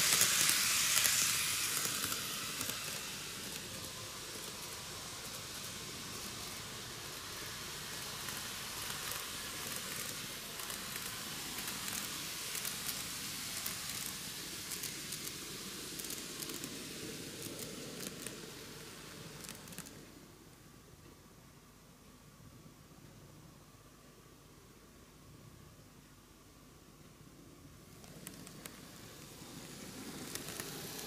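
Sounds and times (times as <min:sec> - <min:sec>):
model train running hiss: 0:00.0 - 0:20.4, 0:27.8 - 0:31.0.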